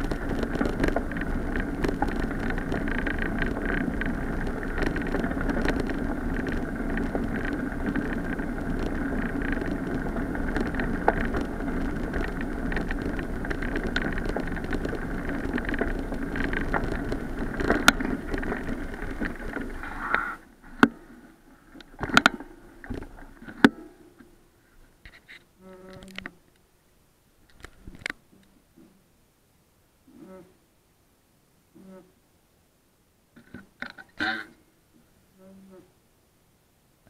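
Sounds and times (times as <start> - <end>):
bicycle tyres rumbling on gravel: 0.0 - 26.2.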